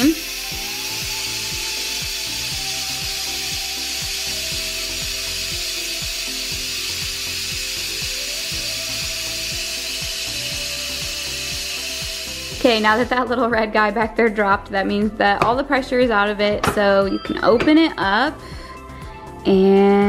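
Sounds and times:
pressure cooker steam hissing: 0:00.0 - 0:13.4
music with steady beat: 0:00.0 - 0:20.0.

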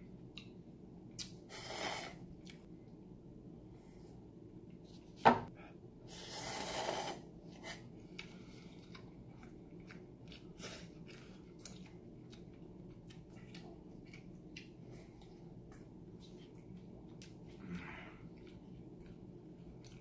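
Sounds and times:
chewing: 0:08.1 - 0:20.0.

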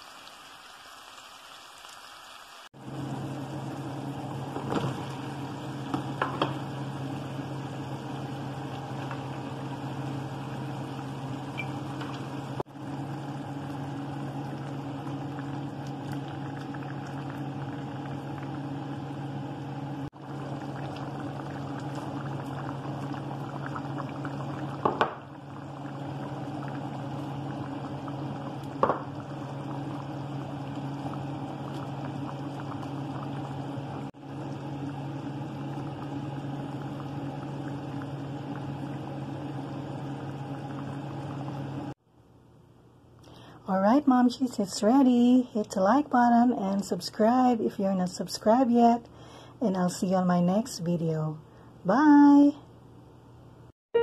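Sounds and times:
stew bubbling in a pot: 0:00.0 - 0:42.0
constant low hum: 0:02.8 - 0:42.0.

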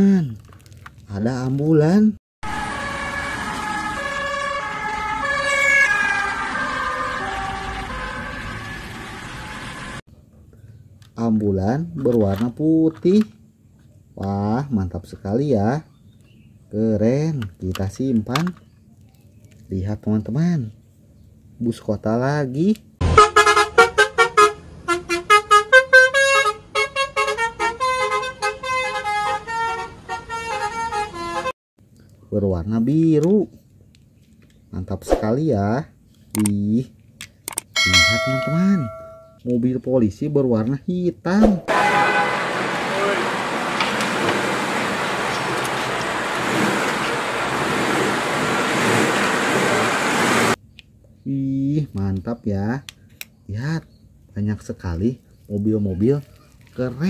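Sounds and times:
ambulance siren: 0:02.4 - 0:10.0, 0:41.5 - 0:50.6.

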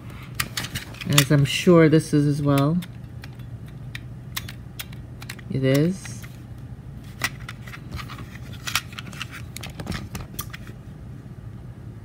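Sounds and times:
faint low hum: 0:00.0 - 0:12.0
plastic shells clicking: 0:02.8 - 0:06.3.

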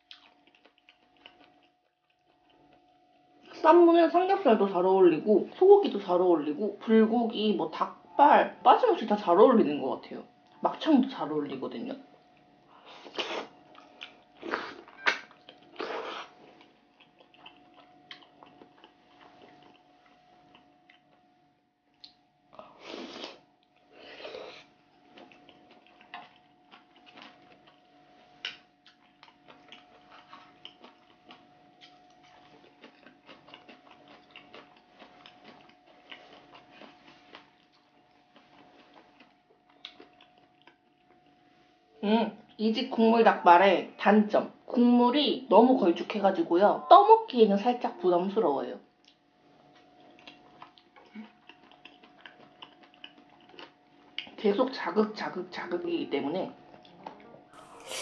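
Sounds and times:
wet chewing and lip-smacking: 0:00.0 - 0:03.5, 0:12.2 - 0:21.3, 0:23.2 - 0:41.4, 0:49.0 - 0:54.4
faint steady hum: 0:00.0 - 0:58.0
wet slurping: 0:57.6 - 0:58.0.

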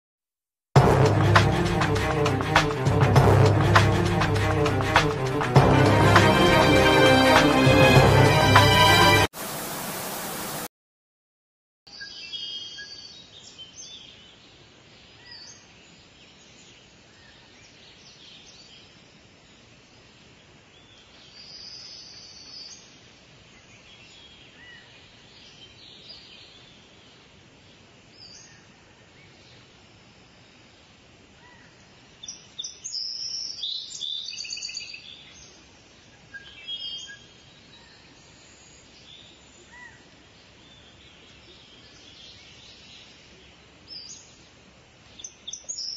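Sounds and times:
faint outdoor hiss: 0:01.3 - 0:10.7, 0:11.9 - 0:45.9
small birds chirping: 0:31.4 - 0:45.9.

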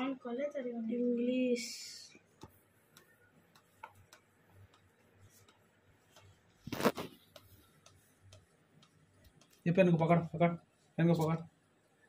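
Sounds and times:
clicks and taps handling tablet: 0:02.3 - 0:09.6.

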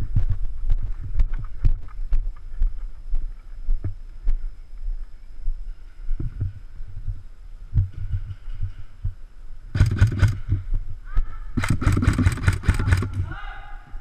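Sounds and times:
paintball marker shots: 0:11.6 - 0:13.2.

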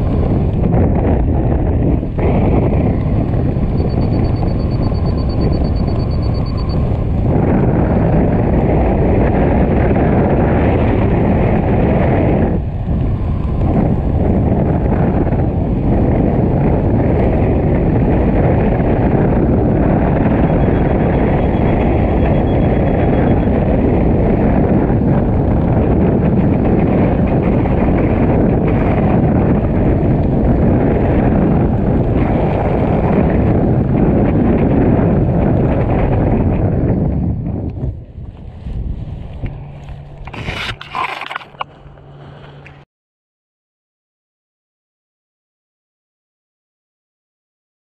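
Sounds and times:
wind rushing over microphone: 0:00.0 - 0:42.8.

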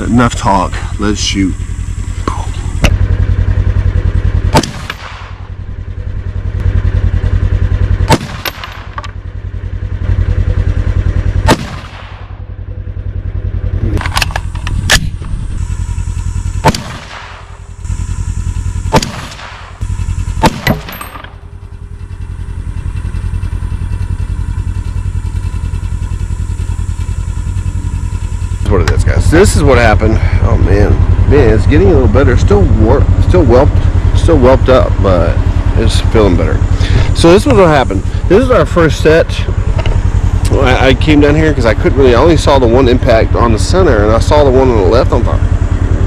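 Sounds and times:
steady low rumble: 0:00.0 - 0:46.0
rifle shots echoing: 0:04.5 - 0:05.5, 0:08.1 - 0:09.0, 0:11.4 - 0:12.4, 0:16.6 - 0:17.6, 0:18.9 - 0:19.8, 0:20.4 - 0:21.4.

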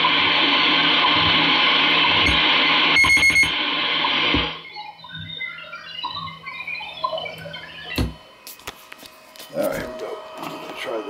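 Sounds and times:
shortwave radio static hiss: 0:00.0 - 0:04.7, 0:07.1 - 0:11.0
faint signal tones: 0:02.2 - 0:03.6
short high beeps: 0:03.0 - 0:03.5.

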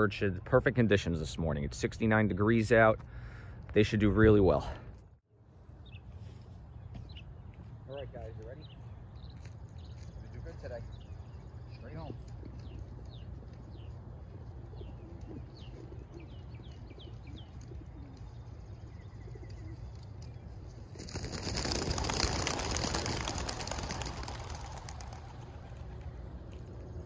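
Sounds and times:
small birds chirping: 0:05.8 - 0:27.0
pigeon wingbeats taking off: 0:20.8 - 0:27.0.

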